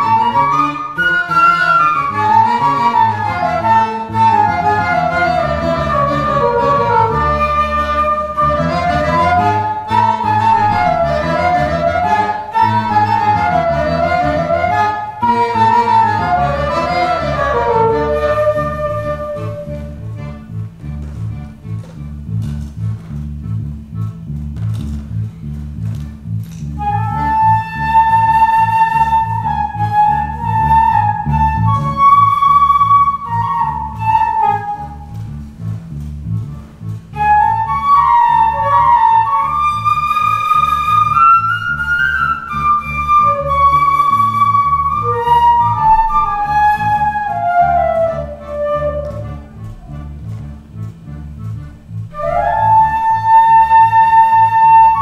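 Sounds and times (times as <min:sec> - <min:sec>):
flute melody: 0:00.0 - 0:24.4, 0:25.1 - 0:55.0
electric bass guitar line: 0:16.2 - 0:27.6, 0:35.0 - 0:37.2, 0:47.8 - 0:53.0.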